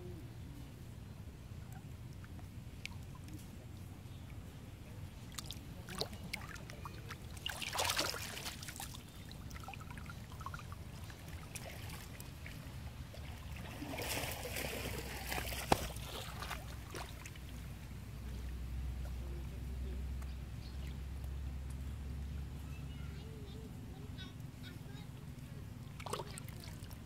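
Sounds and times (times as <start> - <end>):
water splashing and lapping: 1.6 - 20.2, 24.4 - 27.0.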